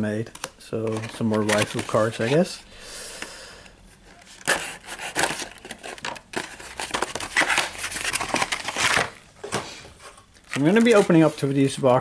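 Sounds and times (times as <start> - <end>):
foil wrapper crinkling: 0.8 - 2.4, 10.4 - 11.6.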